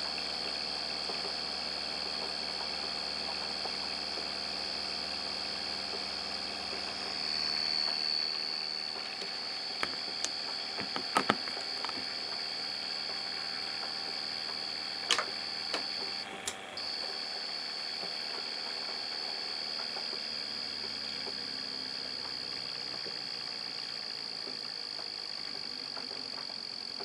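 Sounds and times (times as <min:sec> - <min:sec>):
motor high-pitched whine: 0:00.0 - 0:27.0
low hum: 0:03.3 - 0:19.4.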